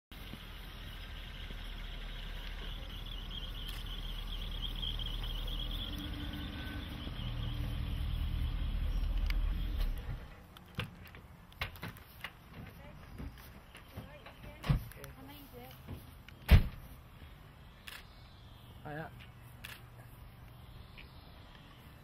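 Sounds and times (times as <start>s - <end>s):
car engine and tyre rumble: 0.1s - 22.0s.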